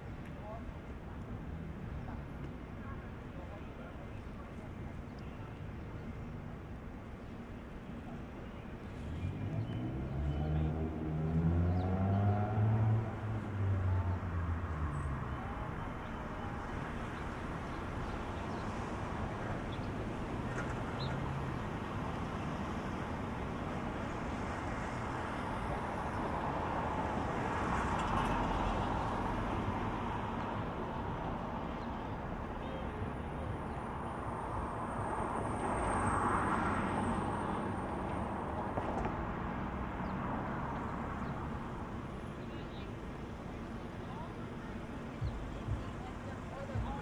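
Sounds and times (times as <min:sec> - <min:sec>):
traffic and tyre noise: 0:00.0 - 0:47.0
vehicle accelerating: 0:09.2 - 0:15.3.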